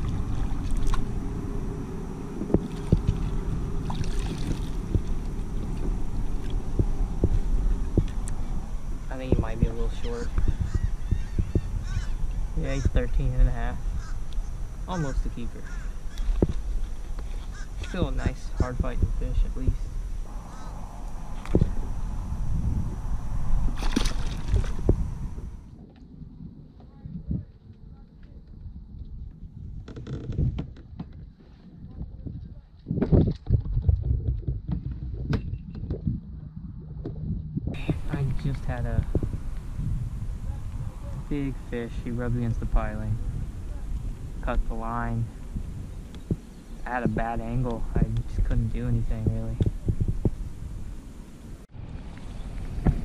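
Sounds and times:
water splashing and dripping: 0.0 - 1.2, 2.4 - 9.5, 23.5 - 25.6
wind rumble on microphone: 0.0 - 53.0
fish splashing into water: 2.6 - 5.1, 23.7 - 25.0.

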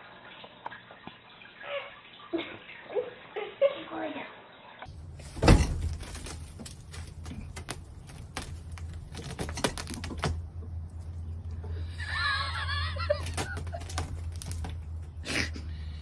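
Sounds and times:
low steady hum: 4.9 - 16.0.

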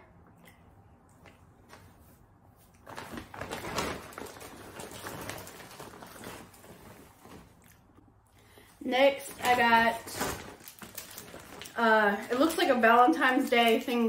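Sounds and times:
gift bag rustling and crinkling: 2.8 - 7.9, 8.8 - 13.5.

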